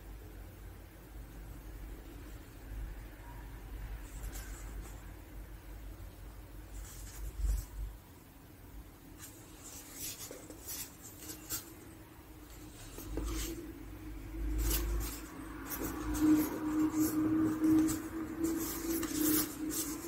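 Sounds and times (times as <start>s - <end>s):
packaging rustling and scraping: 12.5s - 13.7s, 14.3s - 20.0s.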